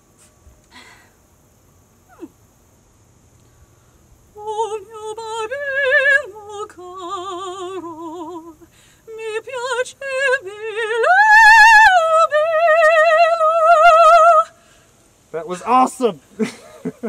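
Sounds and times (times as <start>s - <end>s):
woman singing opera: 4.4s - 14.6s.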